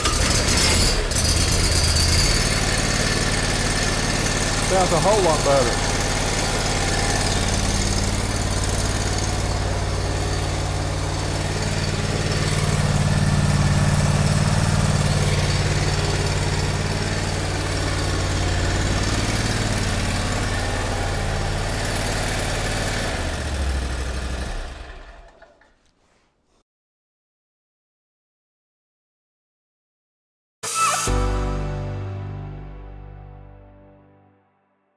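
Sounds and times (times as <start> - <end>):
lawnmower engine running: 0.0 - 25.8.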